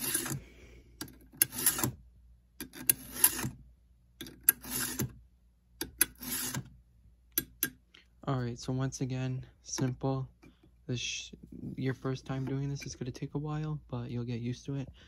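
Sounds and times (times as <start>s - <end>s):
file rasping on chainsaw teeth: 0.0s - 0.4s, 1.4s - 2.0s, 2.7s - 3.5s, 4.5s - 5.1s, 6.0s - 6.6s.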